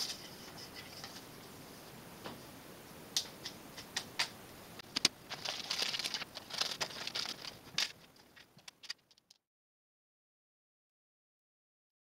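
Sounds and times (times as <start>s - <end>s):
scraping and rustling: 4.8s - 9.4s.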